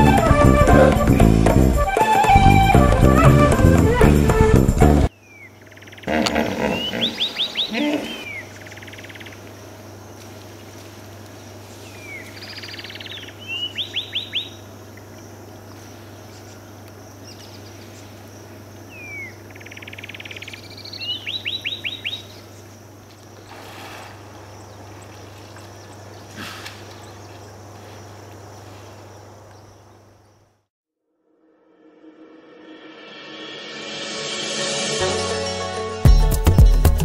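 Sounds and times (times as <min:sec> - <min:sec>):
birds chirping: 0:04.0 - 0:30.6.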